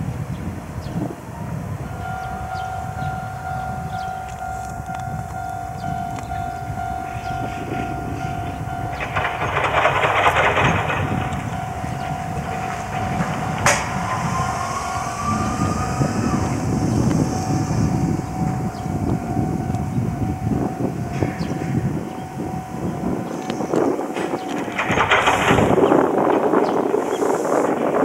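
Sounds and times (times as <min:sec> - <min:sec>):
low rumble: 0:00.0 - 0:26.9
railway warning bell ringing: 0:00.1 - 0:28.0
rising whine: 0:00.6 - 0:25.4.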